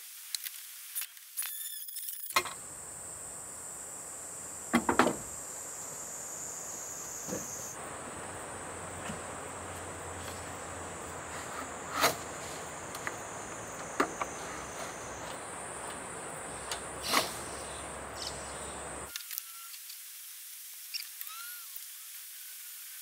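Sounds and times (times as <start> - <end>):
high insect drone: 1.4 - 23.0
knocks on camper wall: 4.7 - 5.3.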